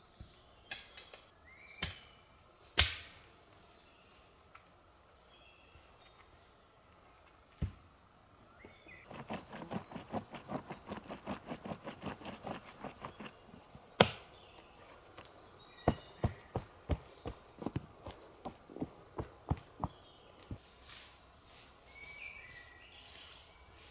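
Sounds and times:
hand tool strokes on wood: 9.1s - 13.6s.

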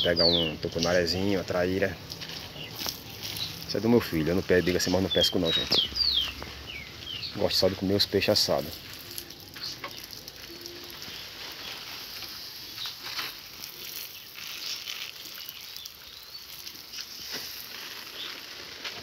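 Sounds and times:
garden hose spraying water: 0.0s - 19.0s
water drops ticking: 8.3s - 11.1s.

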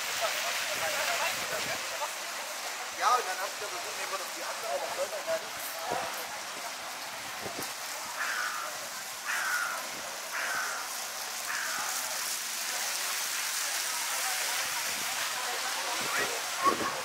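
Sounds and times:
busy street hiss: 0.0s - 17.0s
crow cawing: 8.1s - 12.1s.

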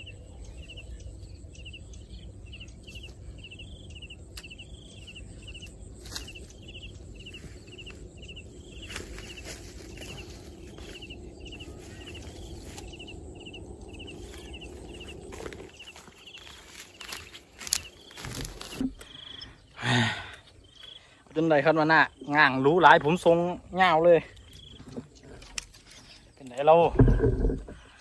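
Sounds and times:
high-pitched chirping trills: 0.0s - 19.8s
steady low rumble: 0.0s - 19.8s.

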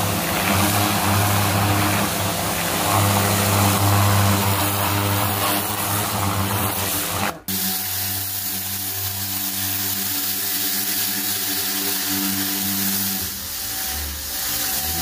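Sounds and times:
pressure washer motor humming: 0.0s - 15.0s.

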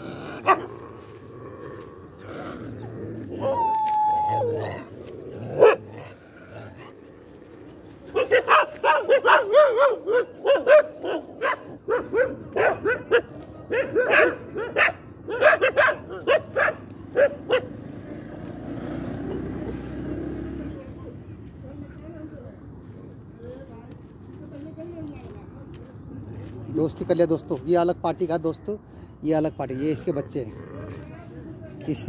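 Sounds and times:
dog barking: 0.4s - 0.7s, 5.5s - 6.0s, 8.1s - 17.8s.

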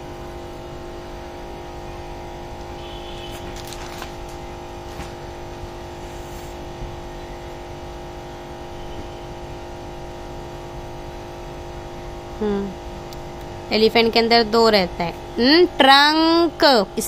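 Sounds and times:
machine hum with held tones: 0.0s - 17.0s.

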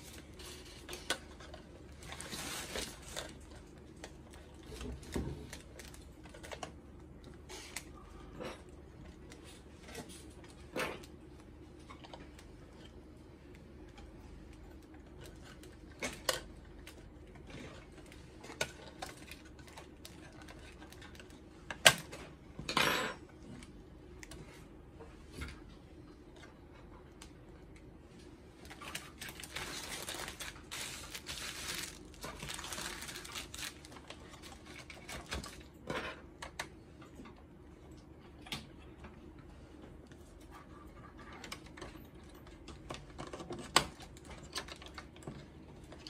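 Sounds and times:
plastic sheeting crinkling: 1.9s - 3.5s, 28.6s - 35.6s.

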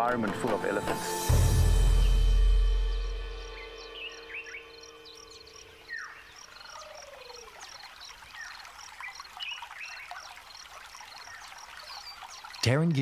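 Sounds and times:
birds calling: 1.6s - 13.0s
short high bird chirp: 2.0s - 6.8s.

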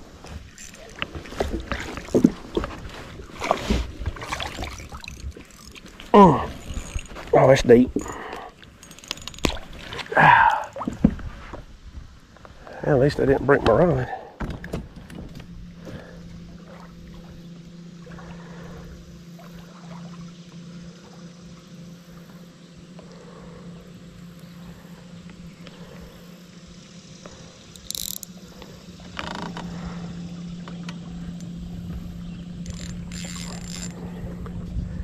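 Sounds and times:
small motor humming: 15.4s - 35.0s.

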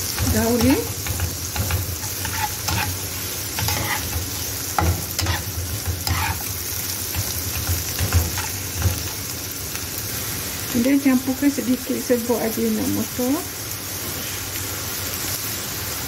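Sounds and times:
spatula scraping and knocking pan: 0.0s - 9.3s
food sizzling in frying pan: 0.0s - 16.0s.

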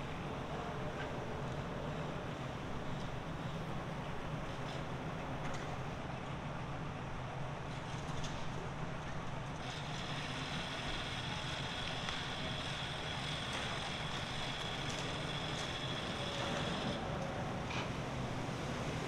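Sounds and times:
vehicle engines idling: 9.5s - 17.6s
steady high-pitched whine: 9.6s - 17.2s.

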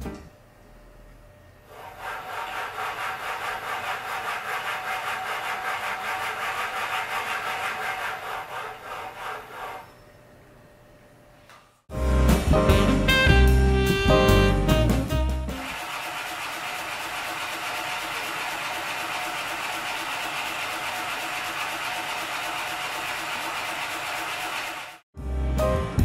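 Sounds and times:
thrusting machine motor stroking: 1.7s - 10.0s.

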